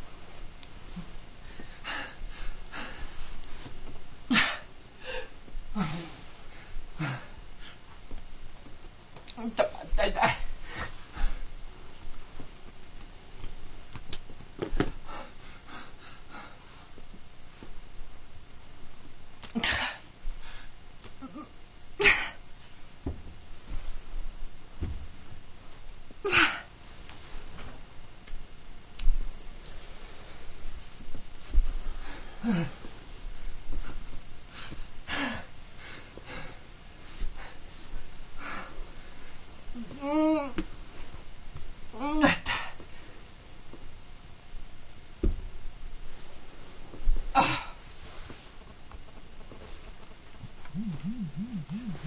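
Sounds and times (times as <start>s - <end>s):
man breathing laboriously: 0.9s - 3.8s, 15.0s - 17.0s, 31.7s - 39.3s.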